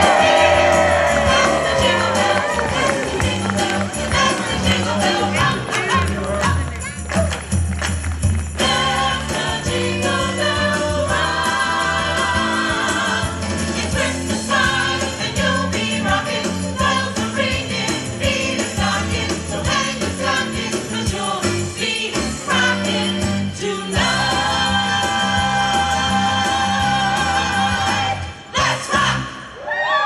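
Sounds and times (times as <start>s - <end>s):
choir singing: 0.0s - 5.7s, 8.6s - 29.5s
sleigh bells jingling: 0.0s - 10.8s.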